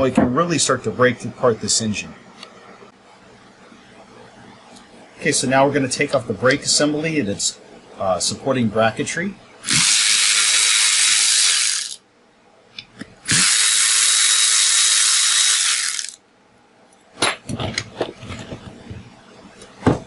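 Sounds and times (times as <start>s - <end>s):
cordless power ratchet whining: 9.6s - 12.0s, 13.3s - 16.2s.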